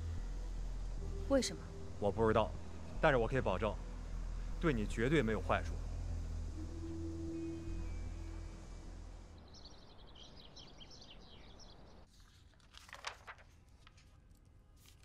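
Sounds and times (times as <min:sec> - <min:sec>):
low steady rumble: 0:00.0 - 0:10.2
small birds chirping: 0:09.4 - 0:12.1.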